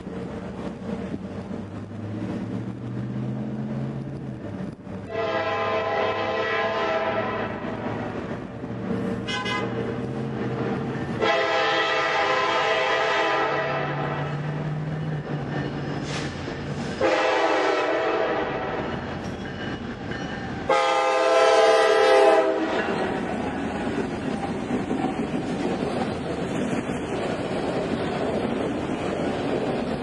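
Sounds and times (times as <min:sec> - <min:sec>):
rail cars clattering past: 0:00.0 - 0:30.0
locomotive horn blasts: 0:05.1 - 0:08.2, 0:09.2 - 0:09.9, 0:11.2 - 0:14.4, 0:17.0 - 0:18.9, 0:20.7 - 0:22.9.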